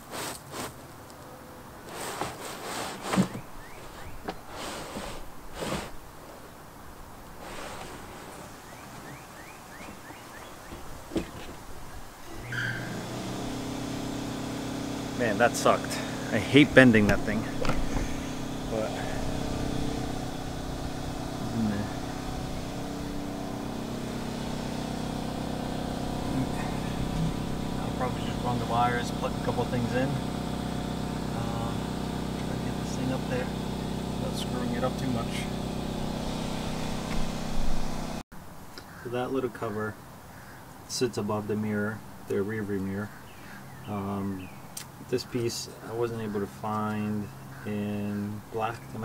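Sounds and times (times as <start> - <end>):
carpet rustling and scraping: 0.0 - 0.9, 1.8 - 6.5, 7.4 - 9.1
low mechanical hum: 0.0 - 39.0.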